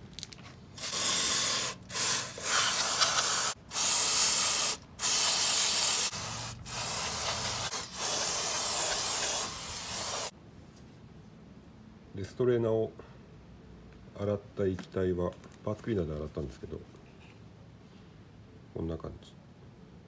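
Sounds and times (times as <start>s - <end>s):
aerosol spray hissing: 0.8s - 10.3s.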